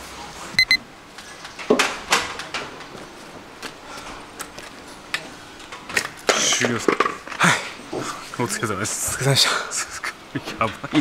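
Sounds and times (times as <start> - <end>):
double electronic beep: 0.6 - 0.8.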